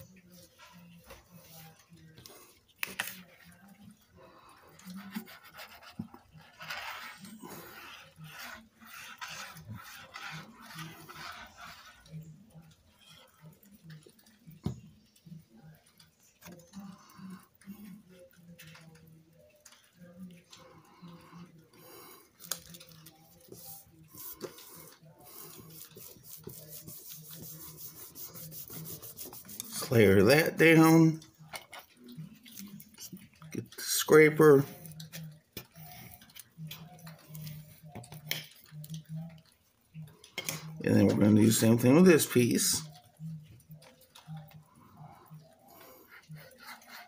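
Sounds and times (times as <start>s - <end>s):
paper rustling and rubbing: 23.4s - 30.0s.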